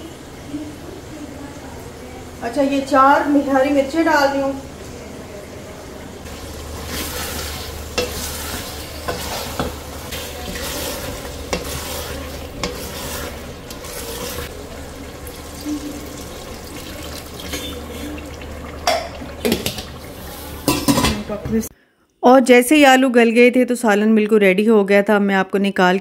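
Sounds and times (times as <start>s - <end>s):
food sizzling: 2.6s - 21.7s
wooden spatula scraping a pot: 6.3s - 21.6s
spatula knocking on pot: 7.9s - 13.0s.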